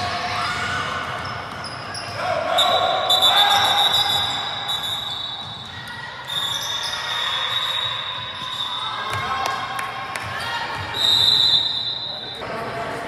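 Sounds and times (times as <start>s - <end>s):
sneakers squeaking: 0.2s - 12.6s
high squeals: 0.4s - 9.2s.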